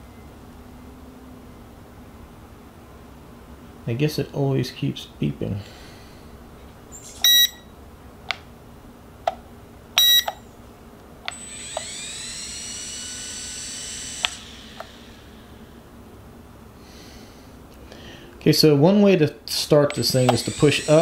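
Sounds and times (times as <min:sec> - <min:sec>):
short electronic beeps: 0:07.2 - 0:07.7, 0:10.0 - 0:10.4
electric rotor motor whine: 0:11.3 - 0:16.0, 0:19.9 - 0:21.0
remote control clicks: 0:14.0 - 0:15.0, 0:19.9 - 0:21.0.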